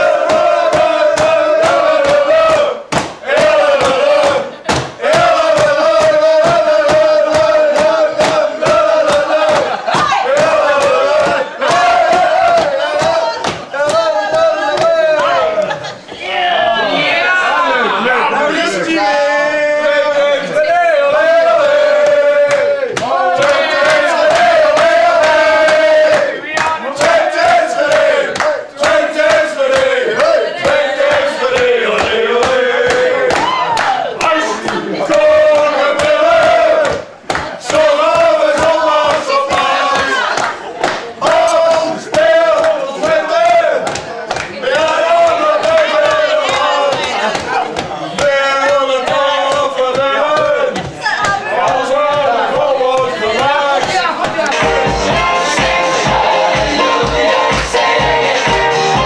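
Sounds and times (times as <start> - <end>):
group of people chanting: 0.0 - 59.0
hands pounding on wooden counter: 0.2 - 14.1.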